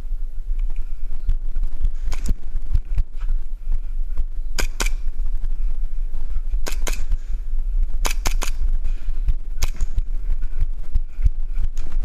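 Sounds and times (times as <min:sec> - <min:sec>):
low rumble on microphone: 0:00.0 - 0:12.0
game pistol firing: 0:04.6 - 0:05.1, 0:06.6 - 0:07.1, 0:08.0 - 0:08.6, 0:09.6 - 0:10.0.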